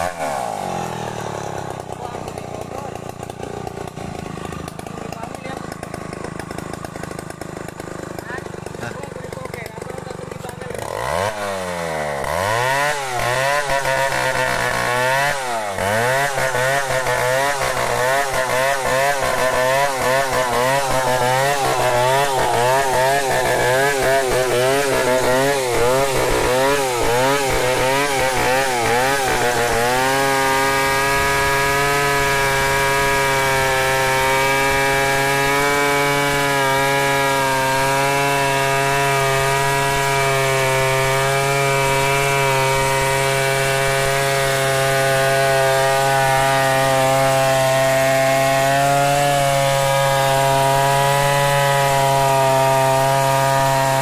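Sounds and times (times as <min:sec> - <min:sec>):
chainsaw ripping a log: 0:00.0 - 0:54.0.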